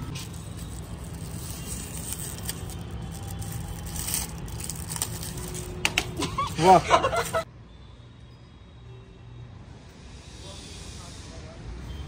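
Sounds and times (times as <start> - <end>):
plastic wrapping crinkling: 0.1 - 6.3.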